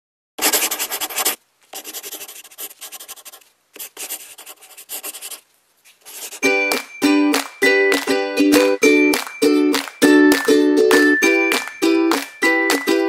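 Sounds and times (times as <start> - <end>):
pen scribbling on paper: 0.4 - 5.4, 6.0 - 6.5
plucked-string music: 6.4 - 13.0.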